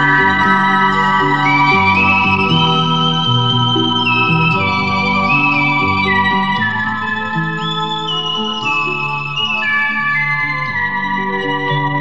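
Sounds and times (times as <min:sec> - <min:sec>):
bass line: 0:00.0 - 0:09.6.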